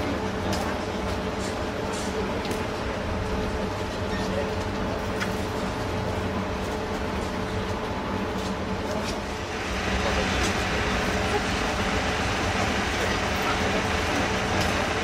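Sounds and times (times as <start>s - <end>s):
tram equipment humming: 0.0s - 15.0s.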